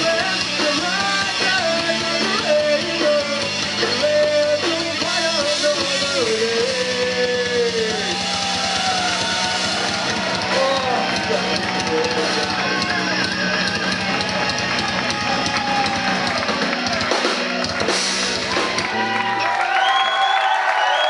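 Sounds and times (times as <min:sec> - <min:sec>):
electric guitars: 0:00.0 - 0:20.6
drums: 0:00.0 - 0:21.0.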